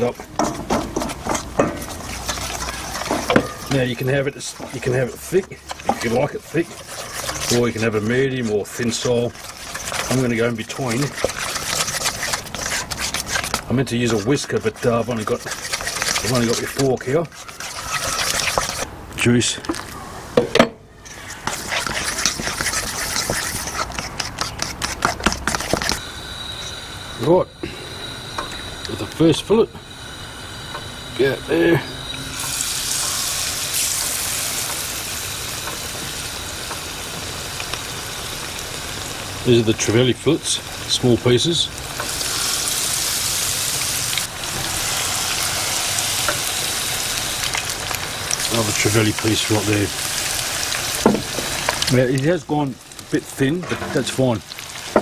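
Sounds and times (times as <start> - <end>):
fish fillets sizzling in oil: 0.0 - 18.9, 21.2 - 53.4, 54.0 - 55.0
fork whisking batter in metal bowl: 0.0 - 18.9, 21.1 - 26.0, 48.3 - 49.9.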